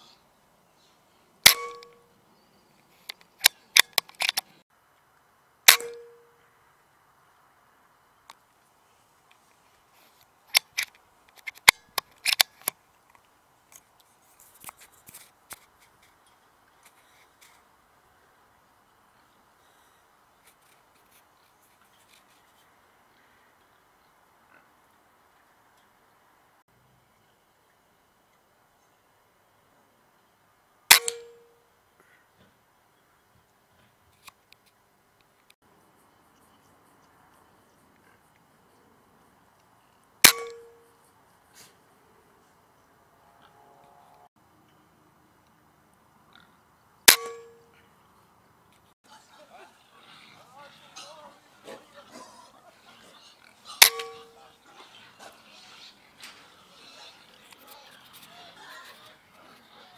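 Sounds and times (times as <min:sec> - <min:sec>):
air rifle cocking clicks: 0:30.9 - 0:31.3.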